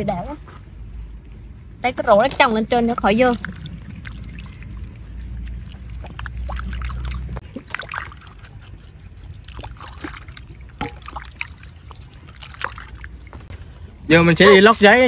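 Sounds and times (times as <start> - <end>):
water splashing in metal basin: 2.2 - 13.5
low rumble: 2.6 - 7.4.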